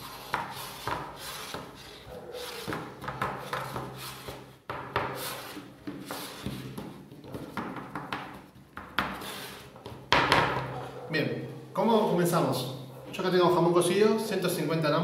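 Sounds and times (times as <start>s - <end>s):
hands pressing pizza dough: 0.1s - 10.6s.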